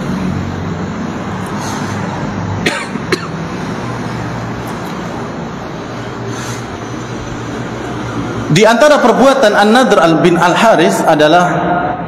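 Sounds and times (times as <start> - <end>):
man coughing: 2.6 - 3.5.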